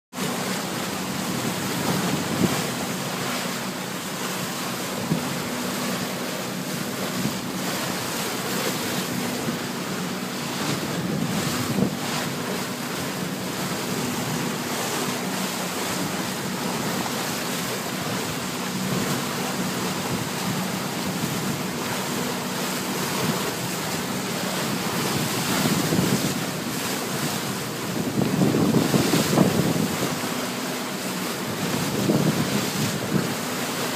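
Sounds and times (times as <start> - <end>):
bow wave splashing along hull: 0.1 - 33.9
low engine hum: 0.2 - 33.9
wind buffeting microphone: 0.8 - 3.4, 6.8 - 17.3, 18.9 - 30.4, 31.2 - 33.4.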